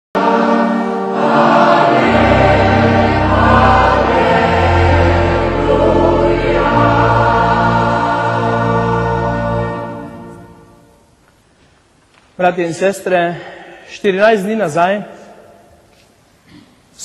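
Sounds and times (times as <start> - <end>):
choir singing a hymn: 0.2 - 11.1.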